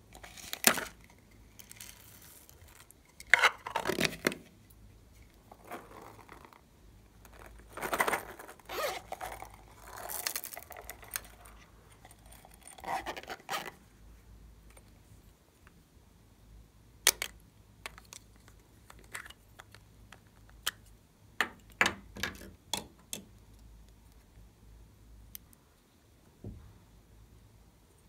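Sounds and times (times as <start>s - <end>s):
plastic containers scraping and clicking: 7.2s - 13.8s.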